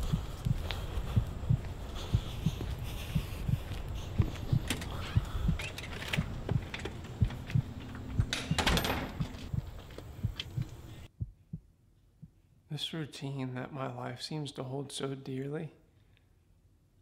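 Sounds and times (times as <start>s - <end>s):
steady low thump: 0.0s - 5.6s, 6.2s - 12.4s
storm door rattling and scraping: 4.4s - 9.6s.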